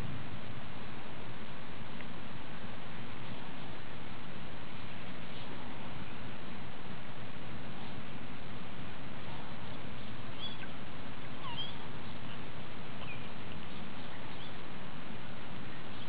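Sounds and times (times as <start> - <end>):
outdoor background noise: 0.0 - 16.0
distant birds chirping: 9.2 - 16.0.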